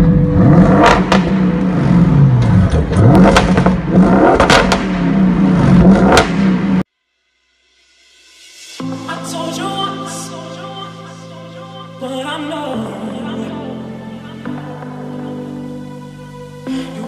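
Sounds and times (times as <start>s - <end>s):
car exhaust revving: 0.0s - 6.9s
exhaust cracks: 0.0s - 6.9s.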